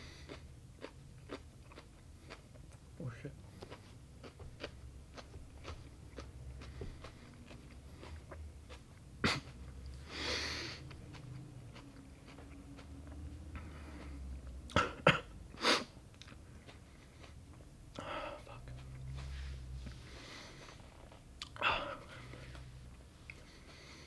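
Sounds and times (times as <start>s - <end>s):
man hiccuping: 14.7s - 15.3s.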